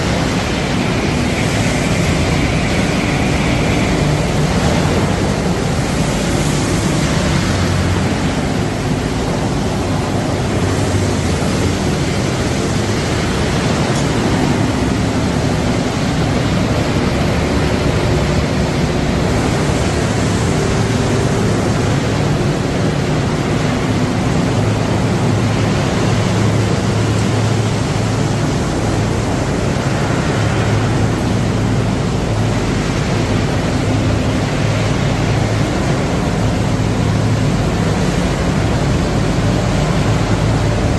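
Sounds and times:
loud steady machinery noise: 0.0 - 40.9.

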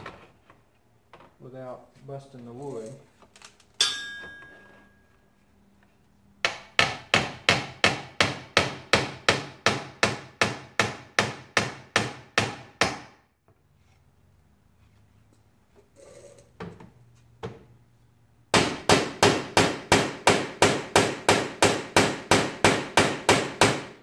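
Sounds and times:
hammer striking metal: 3.8 - 5.0.

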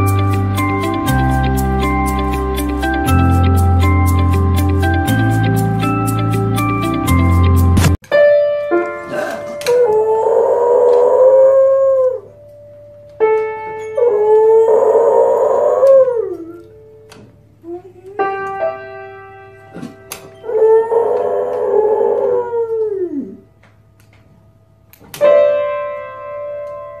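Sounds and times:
piano notes and chords: 0.0 - 27.0
dog howling: 9.1 - 12.3, 14.0 - 16.8, 19.8 - 23.5.

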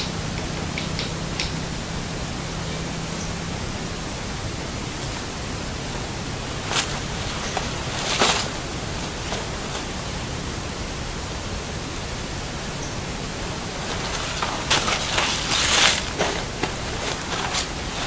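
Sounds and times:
steady hiss: 0.0 - 18.0
cloth bag rustling: 6.4 - 10.2, 13.6 - 18.0.

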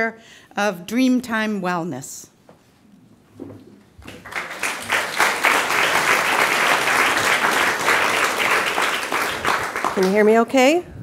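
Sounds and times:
audience applauding: 4.0 - 10.4.

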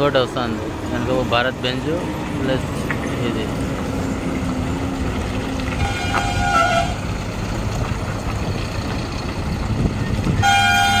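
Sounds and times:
diesel truck engines running: 0.0 - 11.0
truck horn blowing: 5.7 - 7.1, 10.4 - 11.0.

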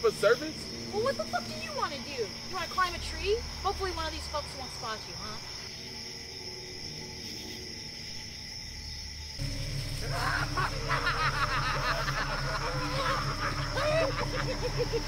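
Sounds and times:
crickets chirping: 0.0 - 15.0
low steady drone: 9.4 - 15.0
shrill cackling voices: 9.8 - 15.0.

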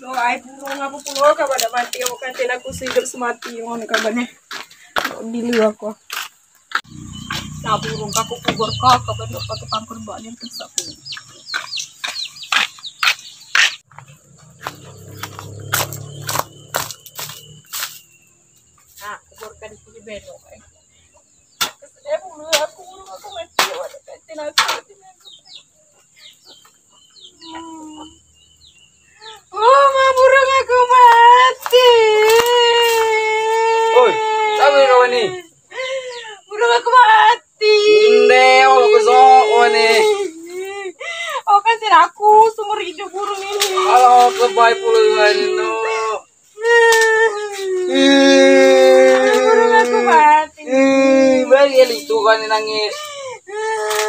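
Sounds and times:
bird chirps: 0.6 - 4.9, 6.0 - 23.8, 25.0 - 31.9
high insect drone: 6.0 - 13.3, 13.9 - 22.2
person wailing: 46.7 - 51.5.

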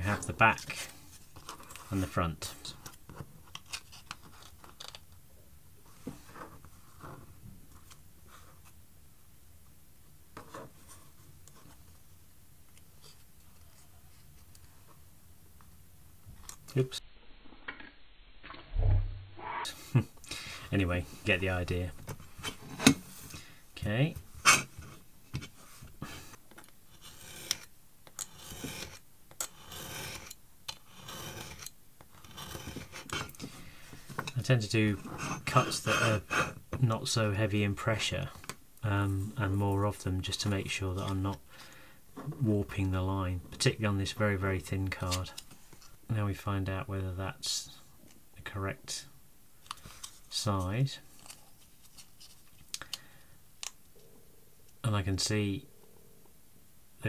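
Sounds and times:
craft knife scratching through card: 26.9 - 33.4.

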